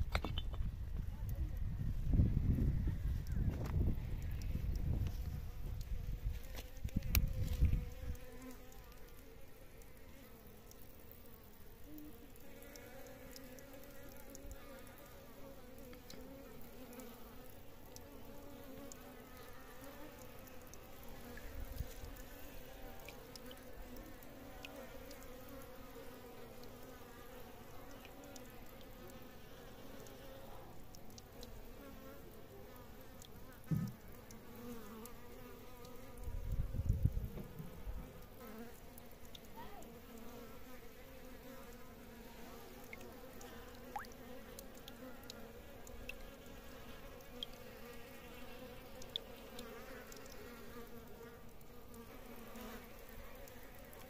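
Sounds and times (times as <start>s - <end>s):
insects buzzing: 2.1s - 54.0s
short low thud: 33.7s - 34.0s.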